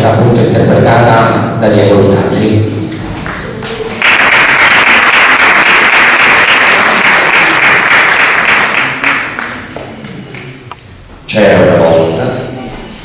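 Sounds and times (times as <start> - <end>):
audience applauding: 3.2 - 10.7.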